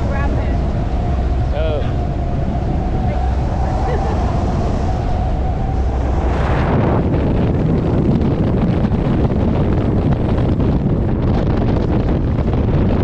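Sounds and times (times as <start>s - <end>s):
thin steady whine: 0.0s - 9.4s
wind buffeting microphone: 0.0s - 13.0s.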